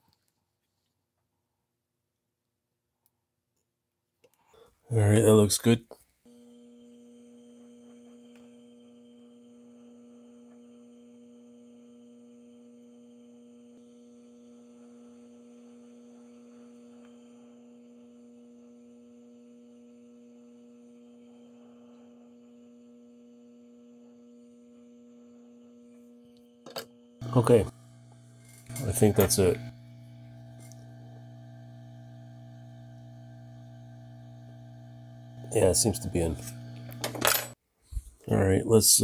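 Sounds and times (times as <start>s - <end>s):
hot air blower hum: 6.3s - 26.2s, 27.2s - 37.6s.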